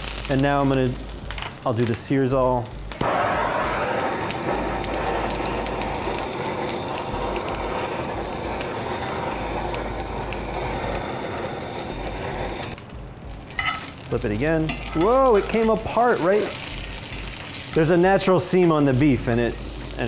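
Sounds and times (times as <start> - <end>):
steaks sizzling in skillet: 0.0 - 20.0
blowtorch rushing: 3.0 - 12.8.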